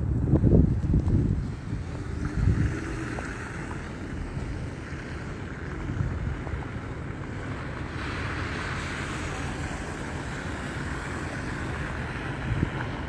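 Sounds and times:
wind buffeting microphone: 0.0s - 13.0s
tyres hissing on slushy road: 0.8s - 13.0s.

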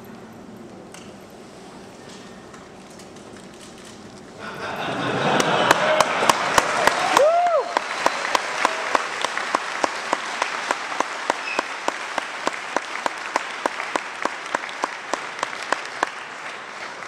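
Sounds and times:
evenly paced machine clicking: 2.0s - 4.3s
audience applauding: 4.4s - 17.0s.

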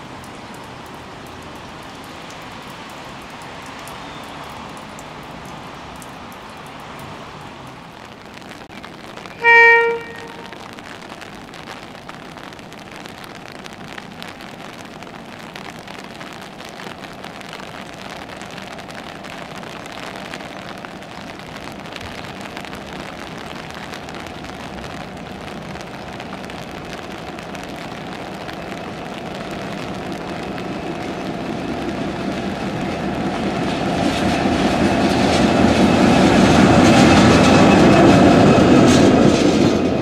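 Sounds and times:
rain falling: 0.0s - 40.0s
diesel locomotive engine drone: 24.3s - 40.0s.

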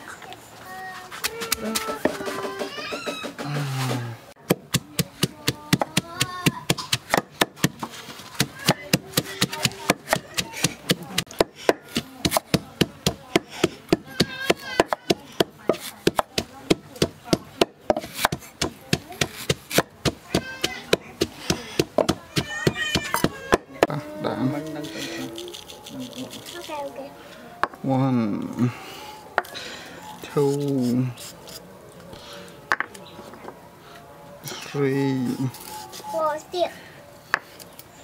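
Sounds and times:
knife chopping on wooden board: 4.5s - 23.7s.

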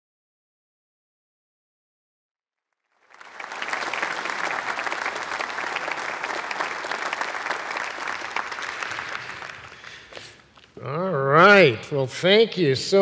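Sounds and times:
audience applauding: 2.9s - 10.6s.

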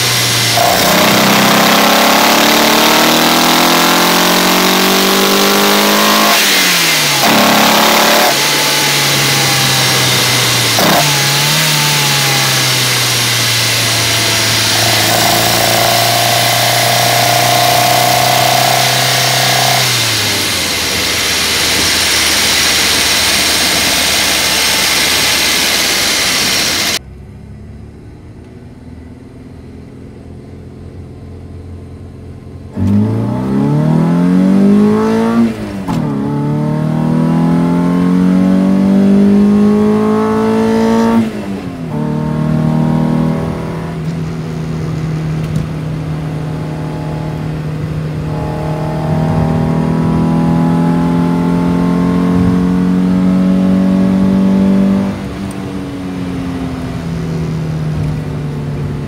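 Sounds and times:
engine intake rush: 0.0s - 27.0s
car engine revving: 0.0s - 28.2s, 29.9s - 59.0s.

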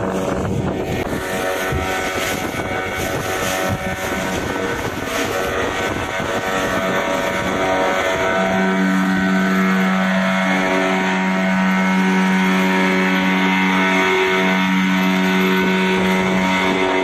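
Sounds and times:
outboard motors running: 0.0s - 17.0s
wind: 0.0s - 17.0s.

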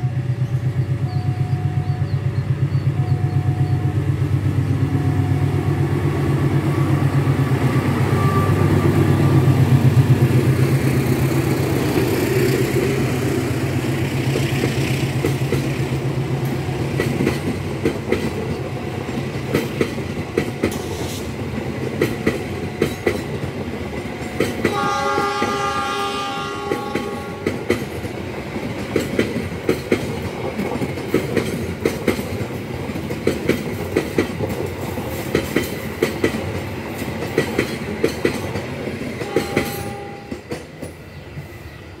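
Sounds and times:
train horn: 2.9s - 4.0s, 4.8s - 6.0s, 7.8s - 9.5s, 24.6s - 27.8s, 39.2s - 40.5s
train wheels clicking over rail joints: 6.5s - 25.6s, 26.6s - 41.5s.

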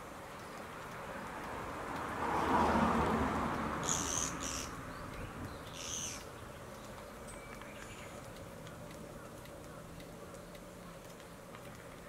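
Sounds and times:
woodpecker buzzy calls: 3.8s - 6.6s.

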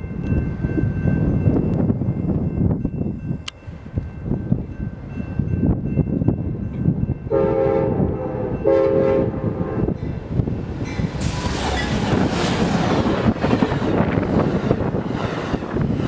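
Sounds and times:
train passing at speed: 0.0s - 16.0s
train horn blasts: 7.3s - 10.0s.

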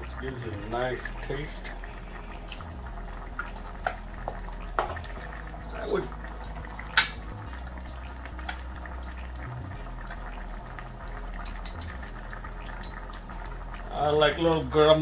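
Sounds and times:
pot simmering with bubbling pops: 0.0s - 15.0s.

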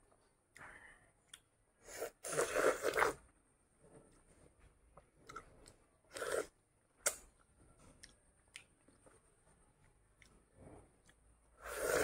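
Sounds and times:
chewing soft fruit: 5.2s - 12.0s.

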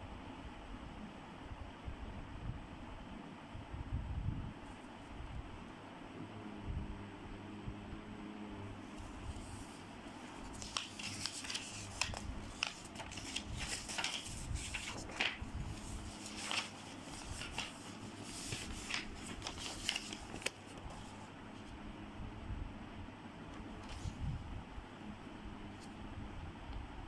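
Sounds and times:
paper pages rustling: 8.9s - 21.7s, 23.8s - 24.2s.

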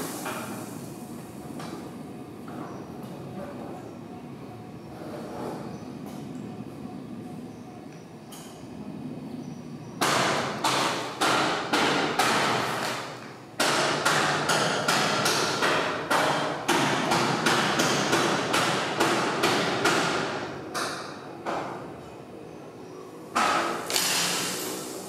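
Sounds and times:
loud hard knocks: 10.0s - 12.7s, 13.6s - 21.7s.

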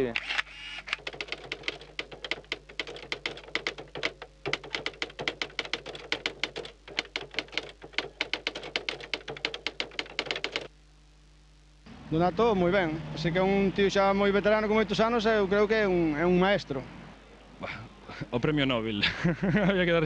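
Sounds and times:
faint hum: 0.0s - 20.0s
typewriter key clacks: 0.9s - 10.7s.

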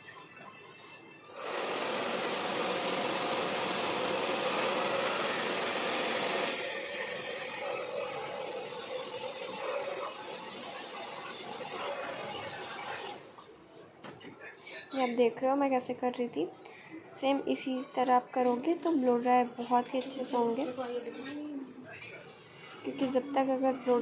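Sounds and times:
hair dryer blowing: 1.3s - 2.7s.

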